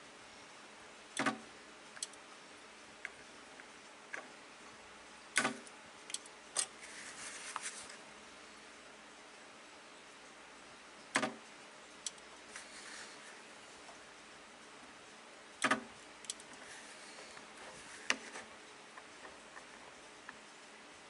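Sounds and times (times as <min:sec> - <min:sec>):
spot welder snapping: 0:05.4 - 0:06.7, 0:15.6 - 0:16.5
faint rustling: 0:06.7 - 0:08.1, 0:12.4 - 0:14.0, 0:16.4 - 0:20.4.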